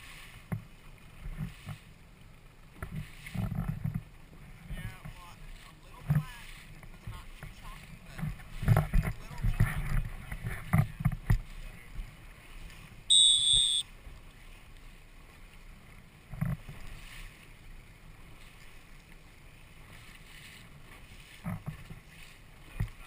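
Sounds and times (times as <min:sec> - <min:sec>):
wind and water rumble: 0:00.0 - 0:23.0
high-pitched tone: 0:13.1 - 0:13.8.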